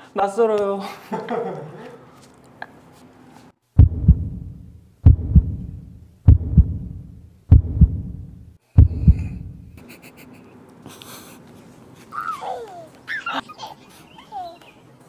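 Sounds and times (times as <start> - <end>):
heartbeat double thumps: 3.8 - 9.8.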